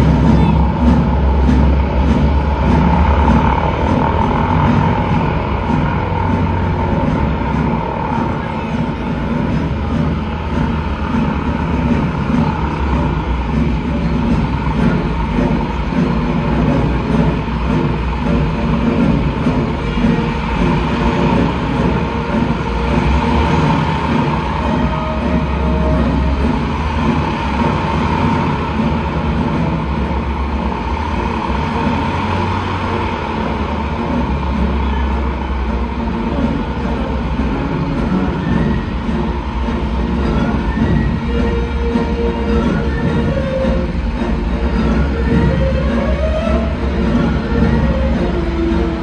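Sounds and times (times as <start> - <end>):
constant hum: 0.0 - 49.0
low throbbing rumble: 0.0 - 49.0
propeller airplane engines droning: 0.0 - 49.0.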